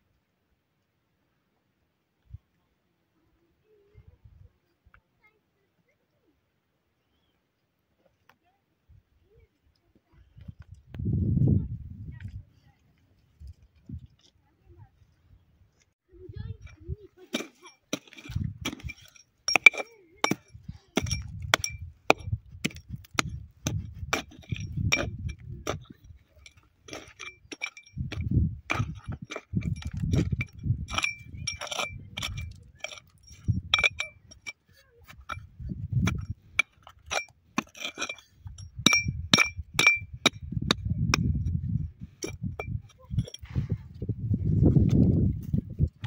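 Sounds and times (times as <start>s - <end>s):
hatchet blade clinking on rock: 16.6s - 43.5s.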